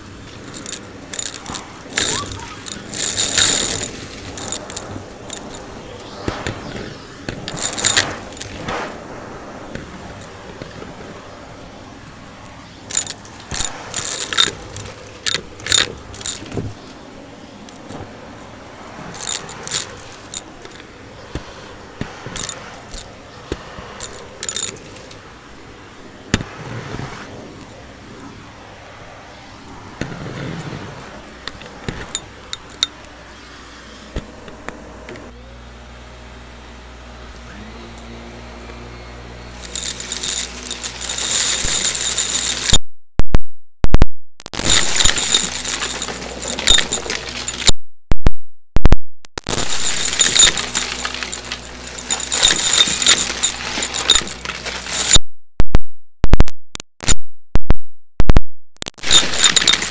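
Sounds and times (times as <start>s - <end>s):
debris clicking in vacuum wand: 0.4s - 9.0s, 12.9s - 16.6s, 39.5s - 42.8s, 44.6s - 47.7s, 49.5s - 55.2s, 59.0s - 59.9s
sharp microphone pops: 6.0s - 9.0s, 42.7s - 45.0s, 47.7s - 49.9s, 55.1s - 59.2s
vacuum cleaner running: 34.8s - 40.4s.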